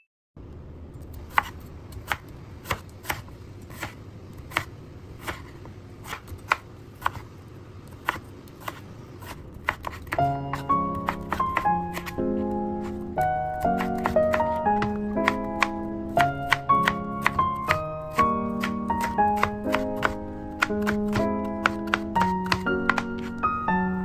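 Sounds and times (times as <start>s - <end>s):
knife chopping on wooden board: 1.3s - 7.3s, 8.0s - 13.0s, 13.6s - 23.5s
music: 10.2s - 24.0s.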